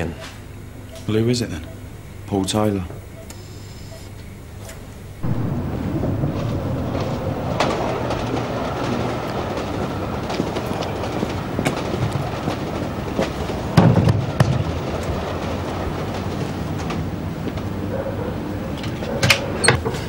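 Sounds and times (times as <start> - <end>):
steady low rumble: 5.2 - 16.8.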